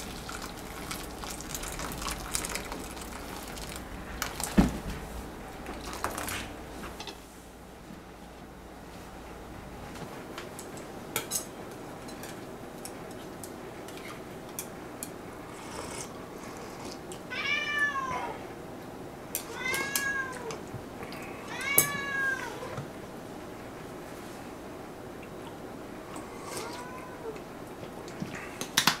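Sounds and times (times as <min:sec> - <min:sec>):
cat meowing: 0:17.3 - 0:18.4, 0:19.5 - 0:20.6, 0:21.4 - 0:22.8, 0:26.5 - 0:27.4.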